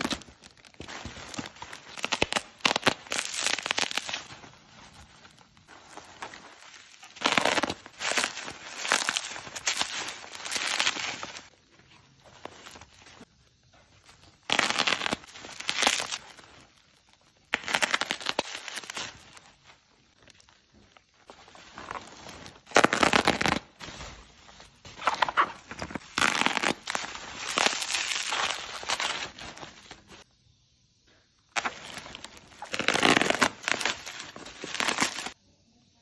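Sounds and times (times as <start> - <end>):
bubble wrap crinkling: 0.0 - 30.2, 31.5 - 35.4.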